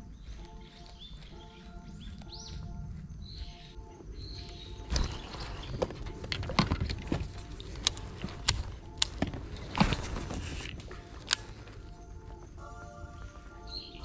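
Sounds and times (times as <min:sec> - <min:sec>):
rustling noise: 0:00.0 - 0:14.0.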